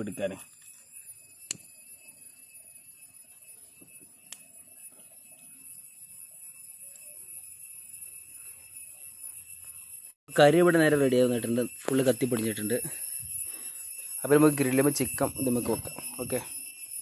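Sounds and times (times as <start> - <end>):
steady high-pitched whine: 0.0 - 17.0.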